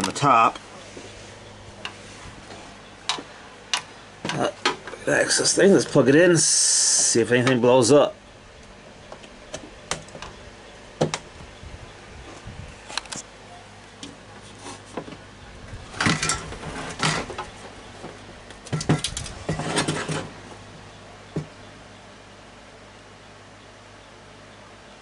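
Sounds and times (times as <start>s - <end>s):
rustling and scraping: 0.0s - 3.4s, 14.0s - 20.6s.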